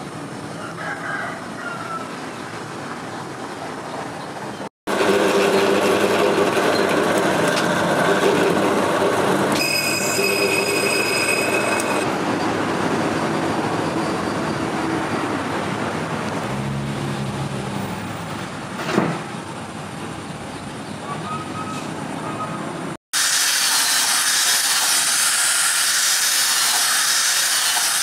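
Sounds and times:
drill press drilling steel: 0:04.9 - 0:12.1, 0:23.2 - 0:28.0
high-pitched drill bit squeal: 0:09.5 - 0:12.1.

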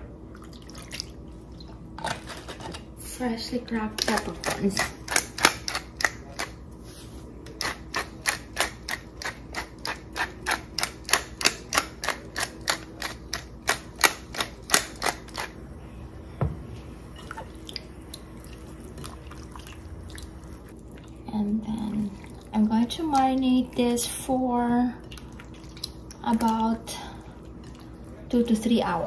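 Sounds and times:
thump: 0:16.4 - 0:16.6
hands mixing raw chicken: 0:25.0 - 0:28.7.

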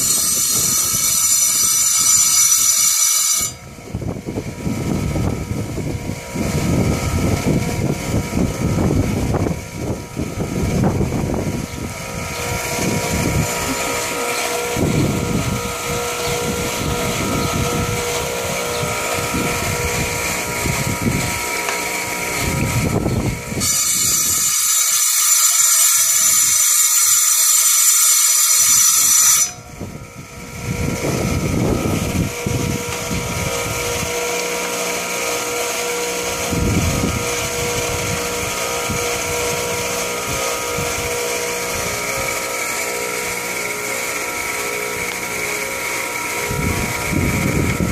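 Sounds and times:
saw blade hissing through rock: 0:00.0 - 0:03.6, 0:23.6 - 0:29.6
tile saw motor whine: 0:00.0 - 0:47.9.

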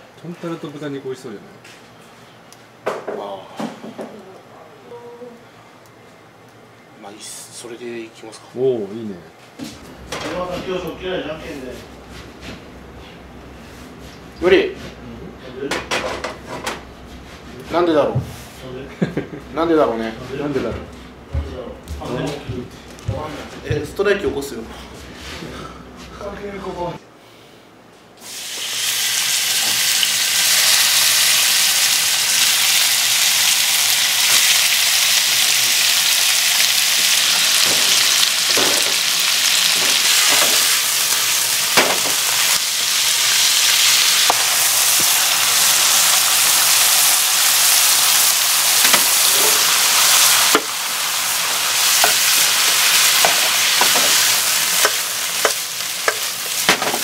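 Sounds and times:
meat sizzling in a frying pan: 0:28.2 - 0:57.0.

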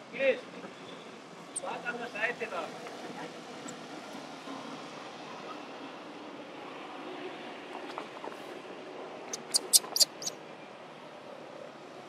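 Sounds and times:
baby monkey squeaking: 0:09.3 - 0:10.3.

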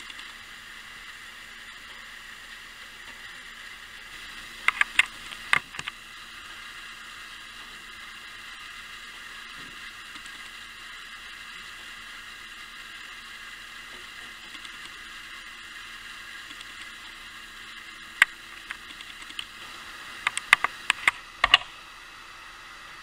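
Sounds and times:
clockwork mechanism whirring: 0:00.0 - 0:23.0
sharp clicks and knocks: 0:04.6 - 0:06.0, 0:18.2 - 0:19.5, 0:20.2 - 0:21.7.

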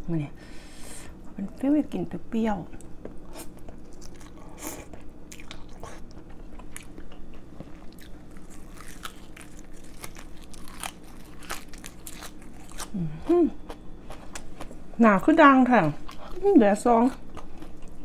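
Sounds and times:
chewing and crunching herbs: 0:02.8 - 0:14.8, 0:15.7 - 0:18.0
person humming: 0:12.9 - 0:13.6.

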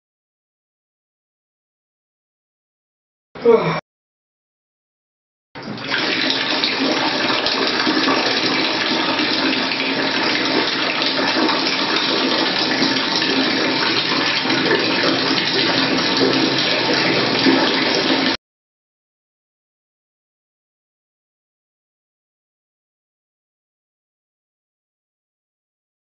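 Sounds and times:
water running from tap: 0:05.6 - 0:18.4.

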